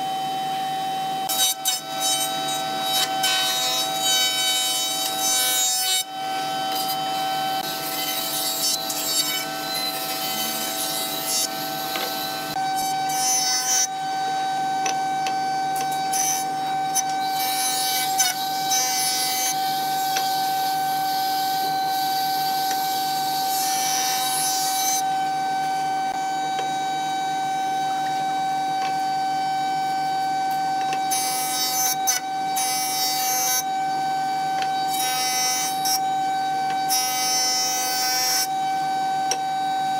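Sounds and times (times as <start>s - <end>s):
jointer whining: 1.2s - 26.8s.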